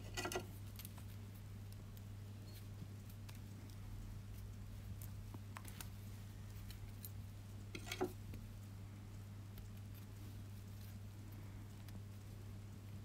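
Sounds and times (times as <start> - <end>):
small metal parts clicking: 0.0 - 0.5, 7.0 - 8.2.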